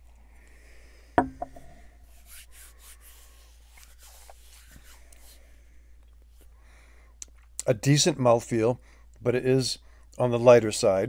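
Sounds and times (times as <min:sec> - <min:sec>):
glass knocking on wooden table: 0:01.2 - 0:01.8.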